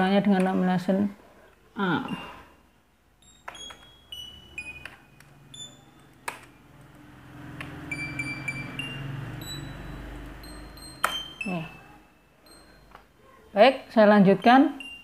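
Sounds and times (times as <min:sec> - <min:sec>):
short high beeping tones: 0:03.2 - 0:06.0, 0:07.8 - 0:13.0, 0:14.4 - 0:15.0.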